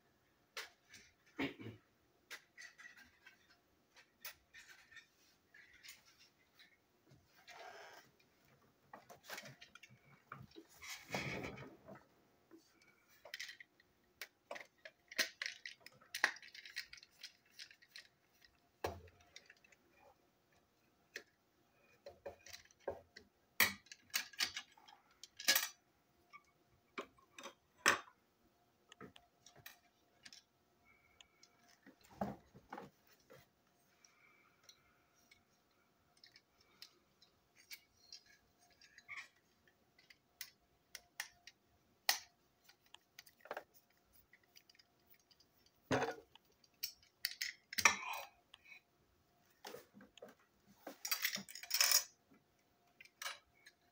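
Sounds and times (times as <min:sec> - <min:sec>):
plastic toy parts clicking and tapping: 0:13.1 - 0:19.8, 0:22.0 - 0:25.8, 0:36.1 - 0:48.7.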